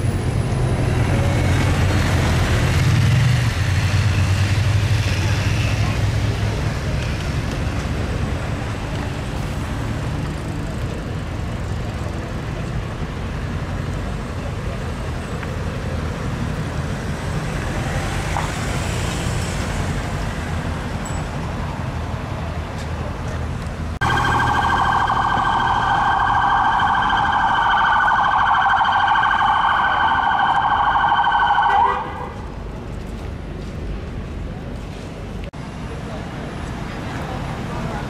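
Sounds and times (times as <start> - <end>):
street traffic: 0.0 - 38.0
police siren warbling: 24.0 - 32.2.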